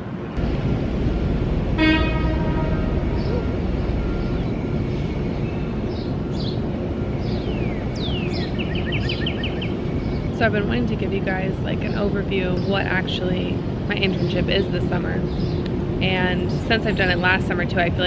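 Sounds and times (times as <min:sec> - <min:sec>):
city low rumble: 0:00.0 - 0:18.0
bird chirps: 0:07.2 - 0:10.4.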